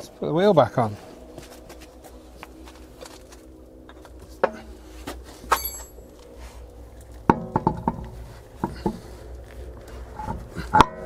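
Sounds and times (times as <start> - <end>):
brief metallic ring: 5.5 - 6.0
metallic knocks of wheel: 7.3 - 9.0.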